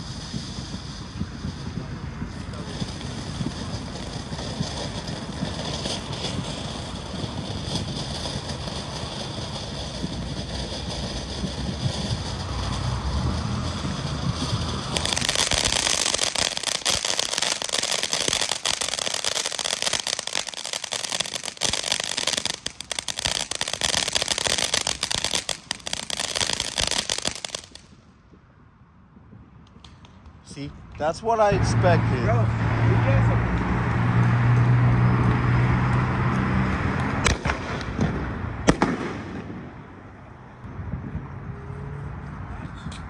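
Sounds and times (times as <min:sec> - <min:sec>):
firework fountain hissing: 0:00.0 - 0:27.9
crackle of rapid pops: 0:07.7 - 0:27.9, 0:37.2 - 0:38.1.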